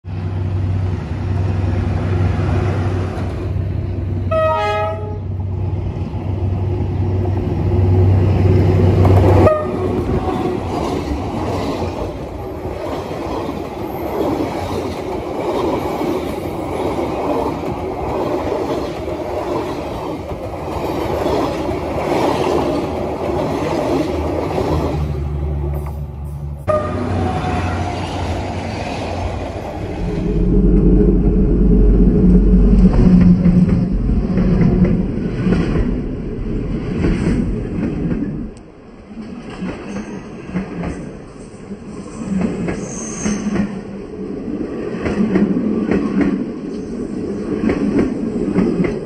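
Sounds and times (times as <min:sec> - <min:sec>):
train horn blast: 0:04.3 - 0:05.4, 0:09.4 - 0:10.4, 0:26.7 - 0:28.1
train wheels clattering on rails: 0:08.7 - 0:26.0, 0:36.6 - 0:43.9, 0:44.9 - 0:49.0
diesel engine drone: 0:29.5 - 0:37.7.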